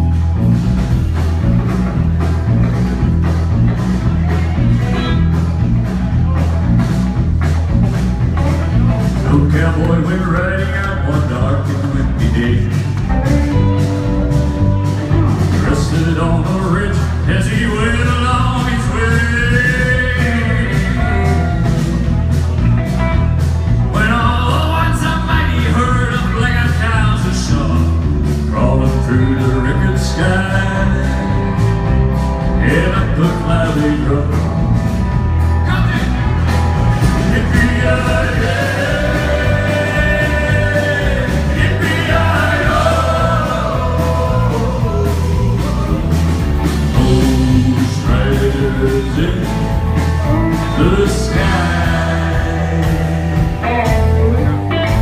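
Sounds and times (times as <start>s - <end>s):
rock and roll band playing: 0.0s - 55.0s
man singing: 9.0s - 13.1s, 15.3s - 21.8s, 23.9s - 31.7s, 32.4s - 34.8s, 37.2s - 53.7s.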